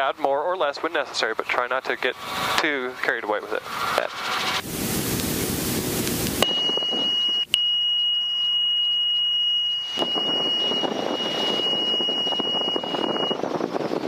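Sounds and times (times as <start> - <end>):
muffled rotor and engine noise: 0.0 - 7.5, 9.9 - 14.0
high-pitched warning tone: 6.4 - 13.6.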